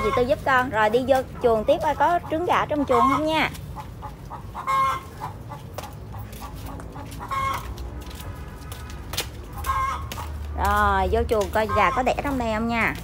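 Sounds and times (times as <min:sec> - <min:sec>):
hens clucking: 0:00.0 - 0:13.0.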